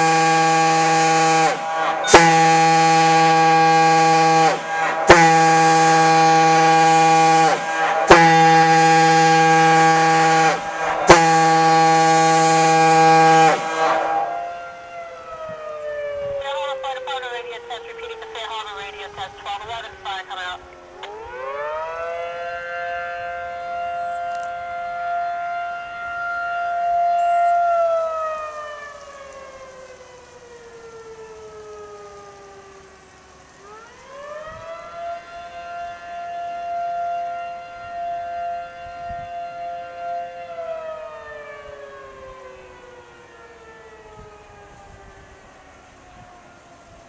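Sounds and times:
diaphone fire horn two-note chord: 0.0 - 14.4.

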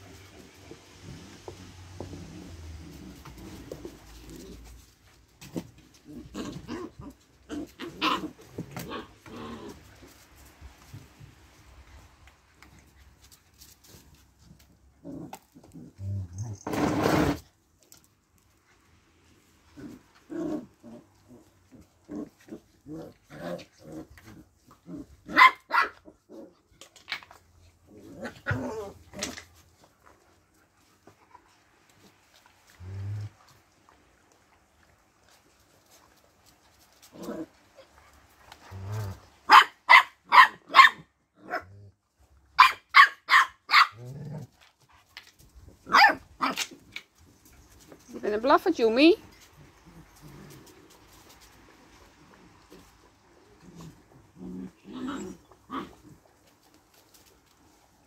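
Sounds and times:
young dogs growling and grunting: 0.1 - 10.2, 13.9 - 17.4, 19.6 - 33.7, 35.1 - 39.5, 41.3 - 42.1, 43.9 - 44.8, 49.2 - 56.7
dogs growling: 19.7 - 25.4, 26.0 - 29.9, 44.0 - 44.8, 49.5 - 51.4, 52.0 - 57.3
sharp high puppy barks: 25.3 - 26.0, 39.5 - 41.1, 42.6 - 44.0, 45.9 - 46.6.

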